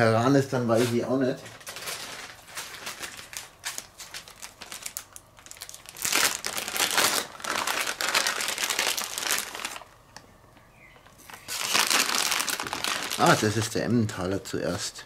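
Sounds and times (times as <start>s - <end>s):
plastic bag crinkling: 0.7s - 10.0s, 11.2s - 14.0s.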